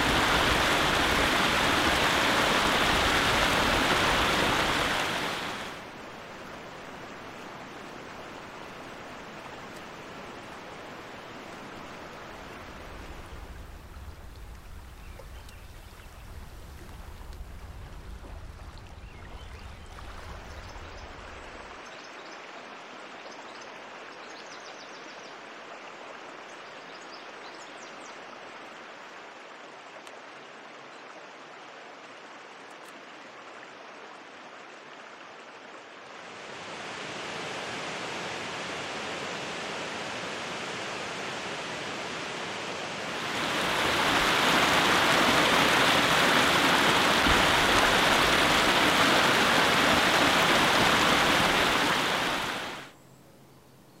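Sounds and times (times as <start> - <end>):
waterfall rushing over rock: 0.0 - 14.2, 36.0 - 52.9
creek running over rocks: 0.0 - 24.3, 28.1 - 52.9.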